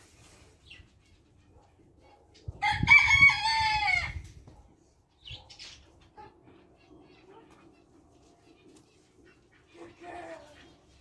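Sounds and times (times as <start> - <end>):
rooster crowing: 2.6 - 4.2.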